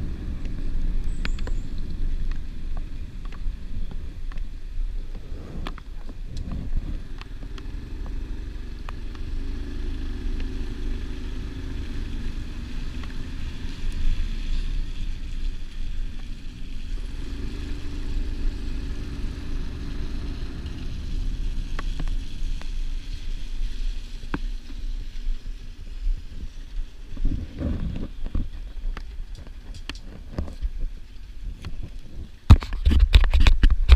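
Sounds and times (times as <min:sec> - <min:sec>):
wind buffeting microphone: 0:00.0 - 0:08.5, 0:26.1 - 0:33.9
motorcycle engine droning: 0:00.0 - 0:32.4.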